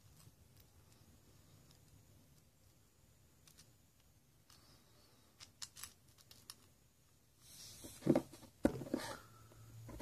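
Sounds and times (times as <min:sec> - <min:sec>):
knocks and handling noise: 0:07.7 - 0:10.0.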